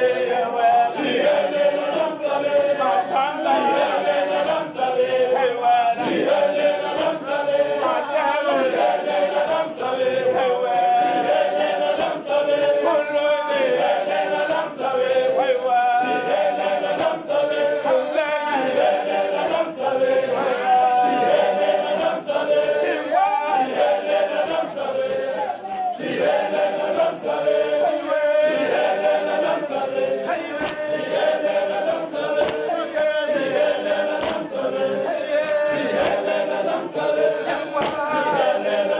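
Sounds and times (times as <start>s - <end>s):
men's choir singing: 0.0s - 38.9s
short sharp beats: 18.7s - 38.6s.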